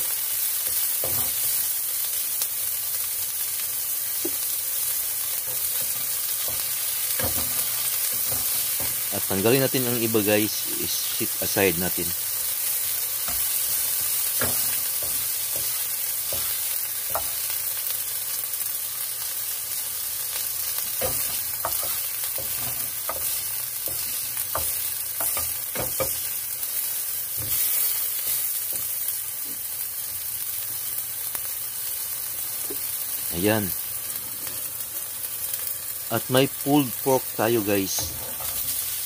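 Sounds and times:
vegetables sizzling in a frying pan: 0:00.0 - 0:39.0
utensils knocking against pan: 0:01.0 - 0:01.5, 0:05.5 - 0:09.1, 0:13.2 - 0:17.5, 0:20.9 - 0:26.3
spatula stirring and scraping: 0:05.4 - 0:09.2, 0:12.8 - 0:17.6, 0:20.8 - 0:26.3.

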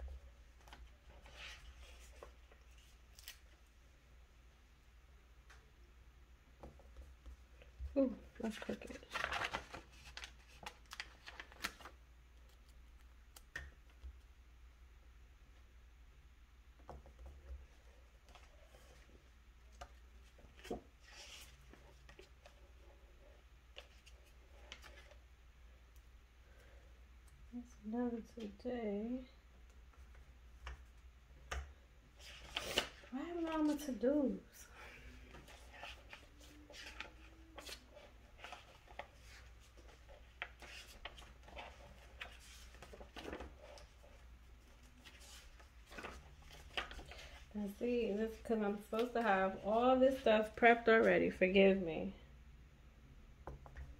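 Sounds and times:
low room hum: 0:00.0 - 0:53.9
soft rustle: 0:00.1 - 0:03.7, 0:32.1 - 0:51.2
faint clicks and taps: 0:29.6 - 0:31.8.

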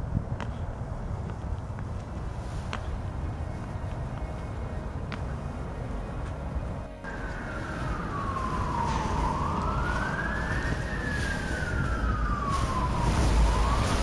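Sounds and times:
low steady rumble: 0:00.0 - 0:14.0
emergency siren wailing: 0:05.6 - 0:14.0.

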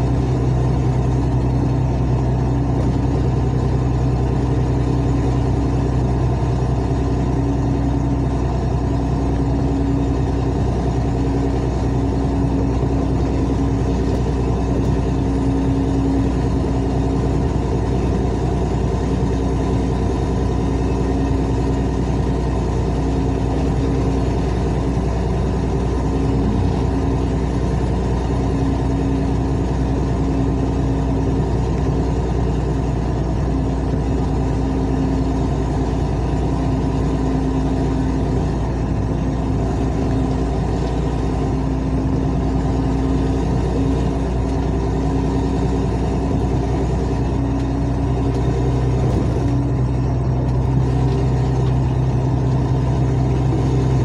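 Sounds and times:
car engine with loud exhaust: 0:00.0 - 0:54.0.

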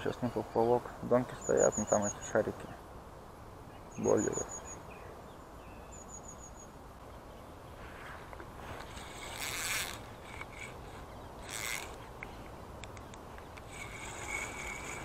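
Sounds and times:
fishing reel whirring: 0:08.7 - 0:12.1, 0:13.6 - 0:15.0.

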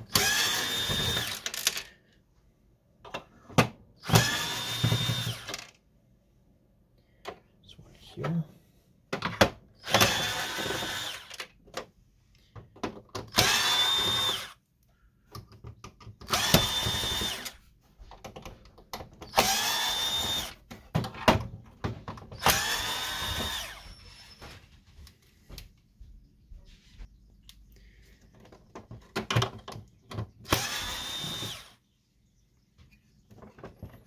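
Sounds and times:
cordless drill motor whine: 0:00.0 - 0:01.9, 0:04.0 - 0:05.7, 0:09.8 - 0:11.5, 0:13.3 - 0:14.6, 0:16.3 - 0:17.6, 0:19.2 - 0:20.6, 0:22.4 - 0:24.6, 0:30.5 - 0:31.8.

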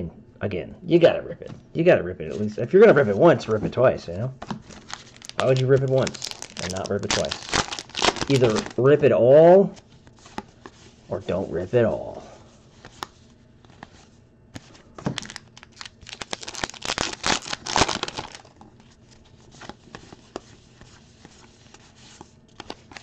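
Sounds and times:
foil wrapper tearing and crinkling: 0:04.7 - 0:08.8, 0:15.1 - 0:18.6.

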